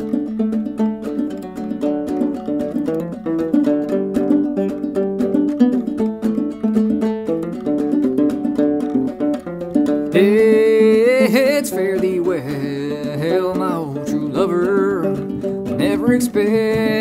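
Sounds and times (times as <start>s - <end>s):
banjo plucked: 0.0s - 17.0s
man singing: 10.0s - 17.0s.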